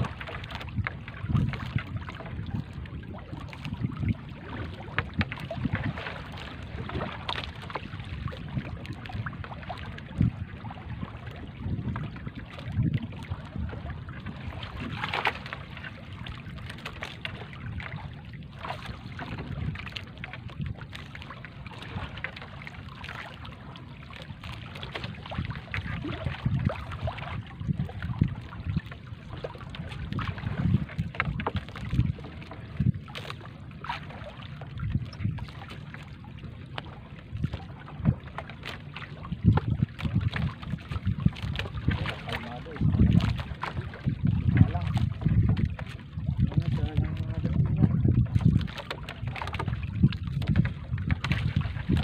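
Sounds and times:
water dripping and splashing: 0.0s - 2.7s, 36.8s - 46.0s, 48.4s - 52.0s
wind buffeting microphone: 0.0s - 52.0s.

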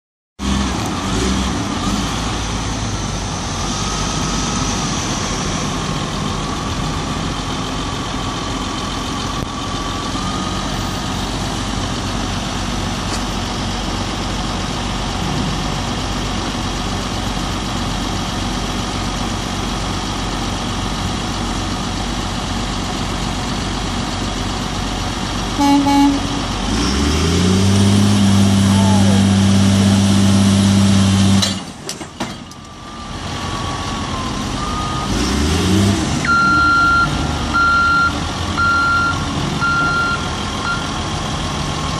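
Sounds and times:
heavy diesel engines running: 0.4s - 41.9s
short horn toot: 25.6s - 26.4s.

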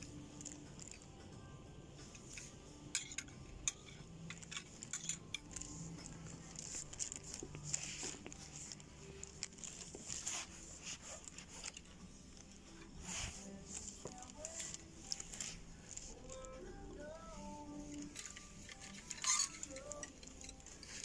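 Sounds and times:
garments rustling on a rail: 2.0s - 21.0s.

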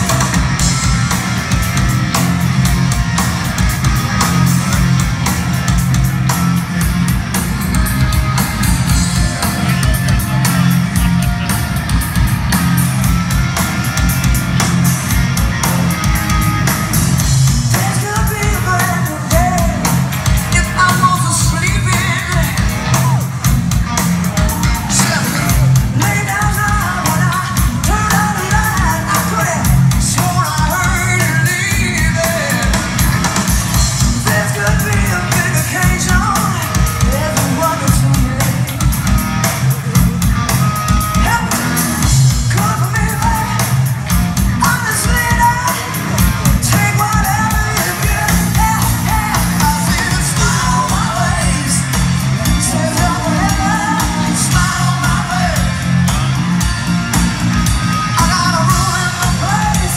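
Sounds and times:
loud rock music: 0.0s - 59.9s
person singing: 17.7s - 23.4s, 44.6s - 55.9s, 58.2s - 59.9s.

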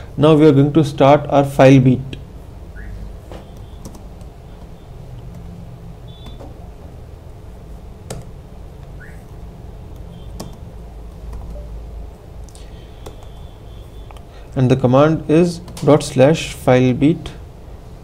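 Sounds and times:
low room hum: 0.0s - 18.0s
computer keys clicking: 3.5s - 5.5s, 8.1s - 9.3s, 9.9s - 11.7s, 12.5s - 13.5s.

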